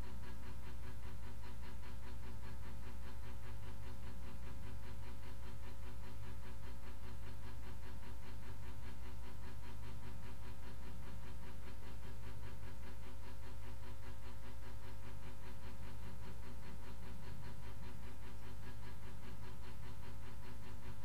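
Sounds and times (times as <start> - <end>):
low electrical hum with pulsing: 0.0 - 21.0.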